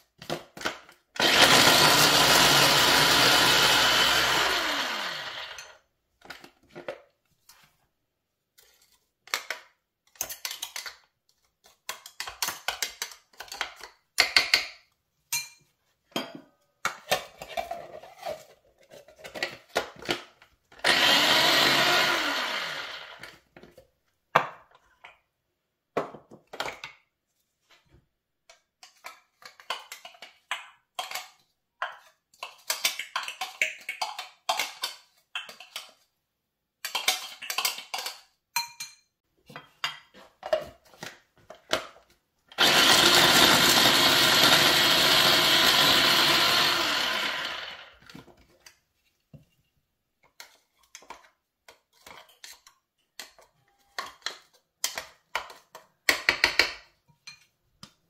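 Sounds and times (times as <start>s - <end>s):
electric food chopper running: 1.2s - 5.8s, 20.8s - 23.3s, 42.6s - 48.0s.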